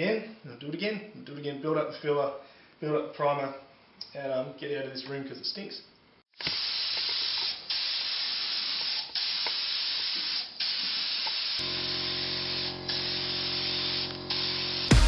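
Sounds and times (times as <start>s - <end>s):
spray gun hissing: 6.4s - 15.0s.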